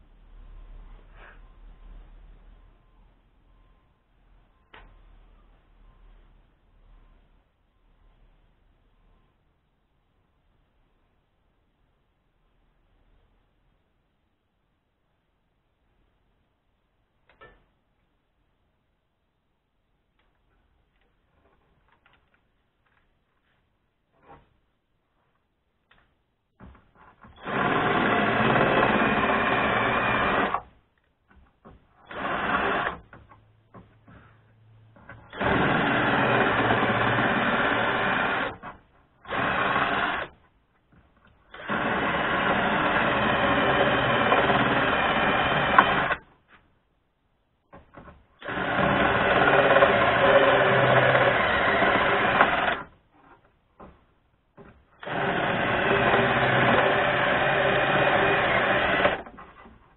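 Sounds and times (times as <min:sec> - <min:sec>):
cordless drill drilling into metal: 0:27.3 - 0:30.6, 0:32.0 - 0:33.1, 0:35.2 - 0:40.4, 0:41.5 - 0:46.2, 0:48.4 - 0:52.9, 0:55.0 - 0:59.3.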